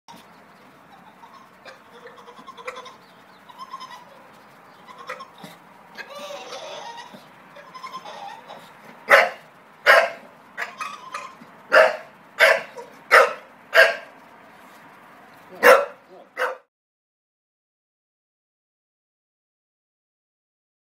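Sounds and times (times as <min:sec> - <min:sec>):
dog whining: 0:05.0 - 0:09.4, 0:10.0 - 0:13.0
dog barking loudly: 0:08.4 - 0:14.2, 0:15.5 - 0:16.7.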